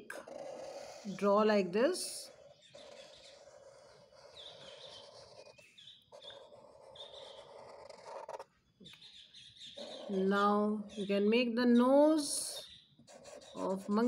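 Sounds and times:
marker scratching on paper: 0.0 - 8.5, 9.7 - 10.4, 13.0 - 14.0
marker squeaks: 2.3 - 10.4, 12.7 - 14.0.

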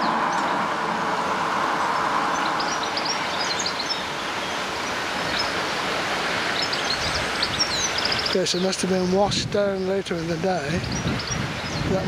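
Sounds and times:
rushing floodwater: 0.0 - 12.0
bird chirps: 1.9 - 5.6, 6.5 - 9.1.

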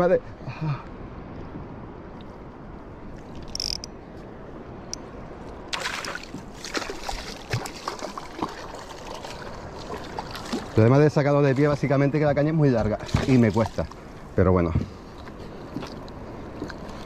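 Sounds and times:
water splashing: 5.6 - 11.8, 12.7 - 14.3.

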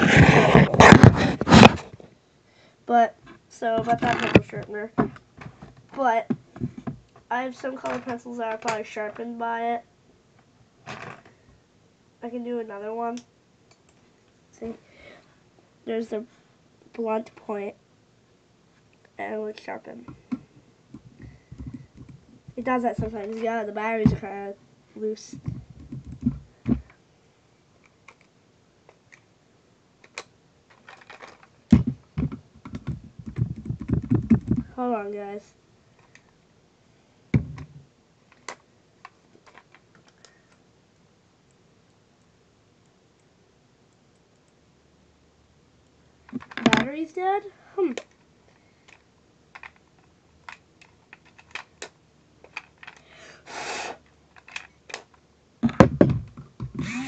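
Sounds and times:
heavy thumps: 0.0 - 2.1, 3.2 - 7.1, 20.1 - 23.4, 31.7 - 34.8, 37.3 - 37.8, 55.6 - 57.0
plastic clicks and knocks: 25.4 - 27.0, 30.0 - 34.7, 46.3 - 46.9, 54.4 - 56.8
knocks: 55.6 - 56.8.

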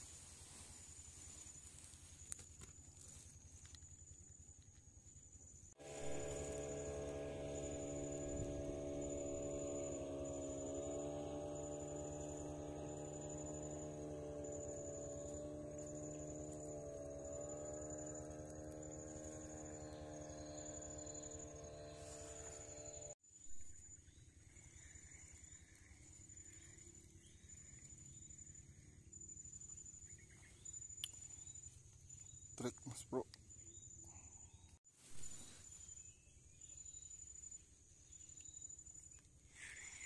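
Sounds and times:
insect chirping: 0.0 - 40.0
droning hum: 5.8 - 32.6.

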